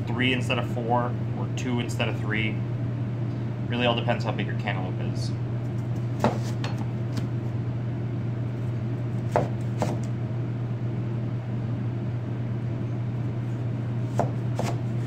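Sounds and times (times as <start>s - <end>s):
steady low hum: 0.0s - 15.0s
knife slicing melon: 6.2s - 7.3s, 9.2s - 10.1s, 14.0s - 15.0s.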